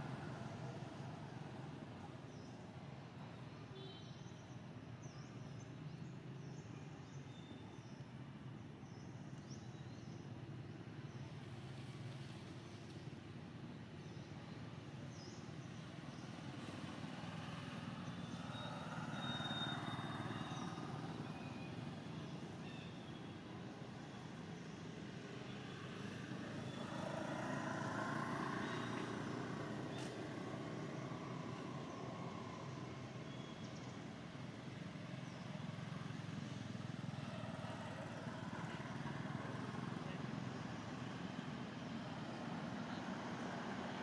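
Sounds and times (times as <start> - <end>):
faint high whistle: 18.5 - 20.8.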